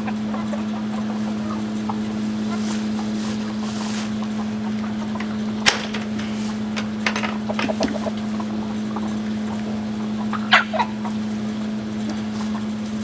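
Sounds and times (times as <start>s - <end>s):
chickens clucking: 0.0s - 13.0s
low mechanical hum: 0.0s - 13.0s
wooden door latch click: 5.7s - 7.3s.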